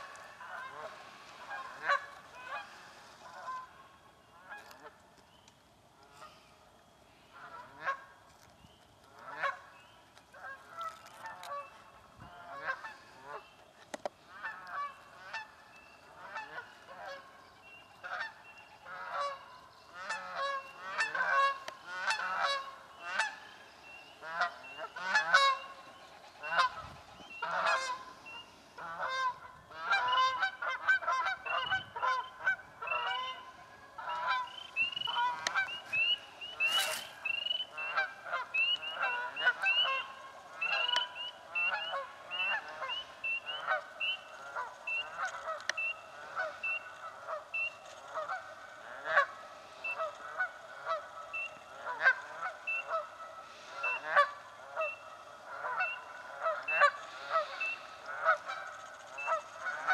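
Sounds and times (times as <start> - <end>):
geese honking: 0.0 - 5.0, 7.1 - 8.2, 9.0 - 59.9.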